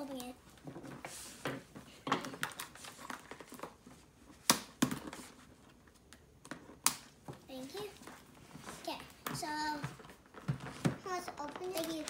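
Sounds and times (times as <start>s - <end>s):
plastic package rustling: 9.8s - 12.0s.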